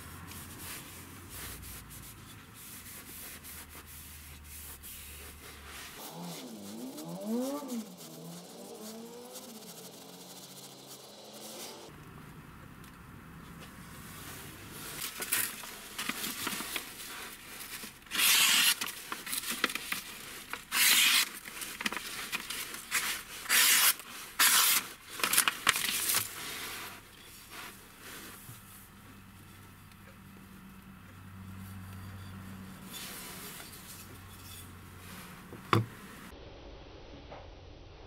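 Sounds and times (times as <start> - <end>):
knife slicing through paper: 0.4 - 11.8, 14.8 - 27.3
paper rustling: 14.7 - 28.6.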